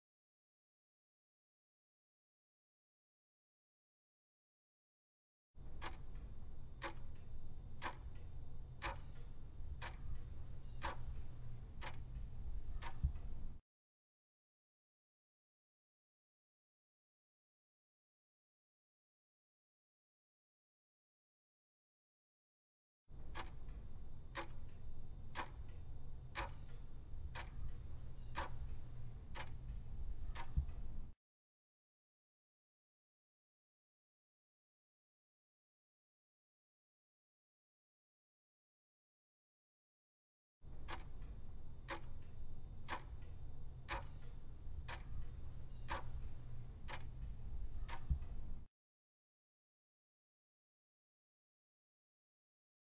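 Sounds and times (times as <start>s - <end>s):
clock ticking: 5.6s - 13.6s, 23.1s - 31.2s, 40.7s - 48.7s
low steady hum: 5.6s - 13.6s, 23.1s - 31.2s, 40.7s - 48.7s.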